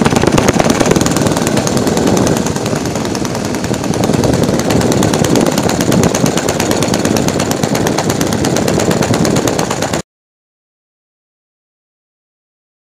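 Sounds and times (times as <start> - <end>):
model aircraft engine idling: 0.0 - 10.0.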